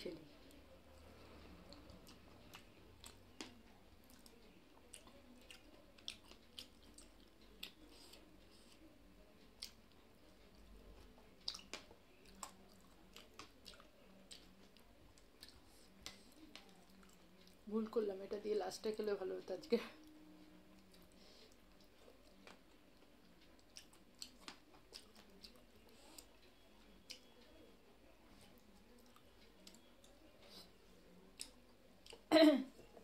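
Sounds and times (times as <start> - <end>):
chewing with wet mouth sounds: 0.4 - 17.7, 20.7 - 27.7, 28.3 - 32.3.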